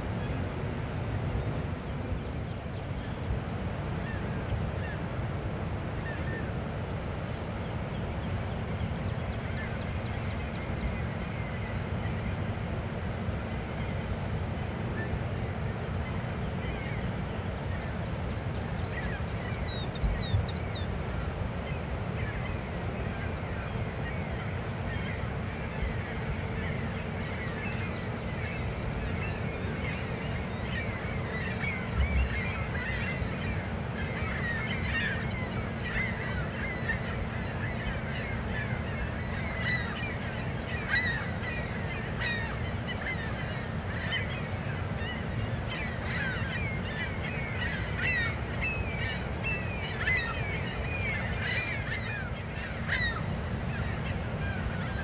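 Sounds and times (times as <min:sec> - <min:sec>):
faint hum: 0:00.0 - 0:55.0
birds calling in falling notes: 0:14.7 - 0:55.0.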